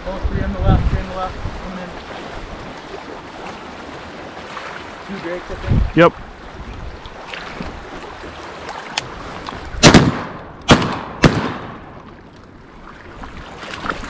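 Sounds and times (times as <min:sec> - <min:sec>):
wind: 0:00.0 - 0:14.0
shotgun shots: 0:09.8 - 0:12.0
lapping water: 0:12.0 - 0:14.0.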